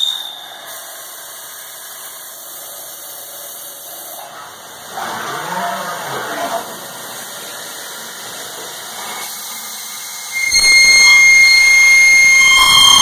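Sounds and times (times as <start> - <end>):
drill squealing cutting steel: 10.1 - 13.0.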